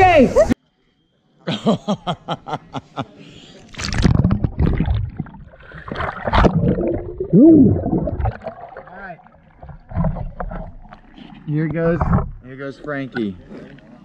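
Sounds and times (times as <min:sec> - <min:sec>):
pool water splashing and gurgling: 0:03.7 - 0:14.0.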